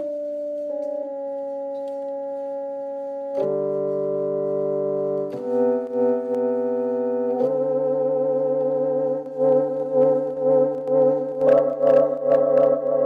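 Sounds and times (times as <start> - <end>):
slow brass-like chords: 0.0 - 13.0.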